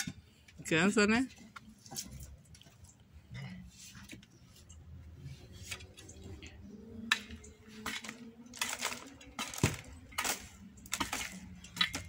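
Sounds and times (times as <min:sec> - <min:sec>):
metal hoe scraping stony soil: 0:07.1 - 0:12.0.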